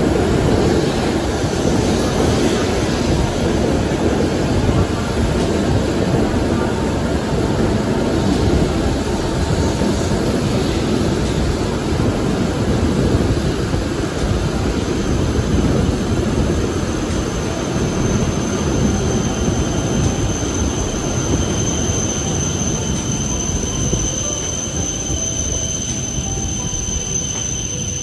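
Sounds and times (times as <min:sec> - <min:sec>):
train wheels rumbling: 0:00.0 - 0:28.0
train brakes squealing: 0:15.8 - 0:28.0.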